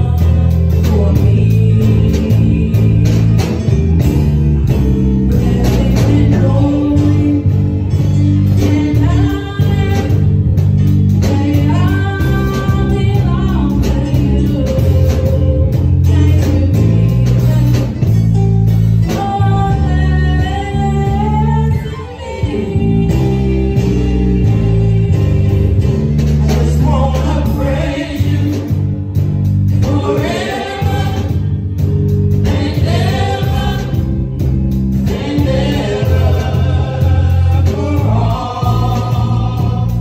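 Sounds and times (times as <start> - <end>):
group singing gospel: 0.0 - 18.3, 19.1 - 40.0
instrumental backing with bass: 0.0 - 40.0.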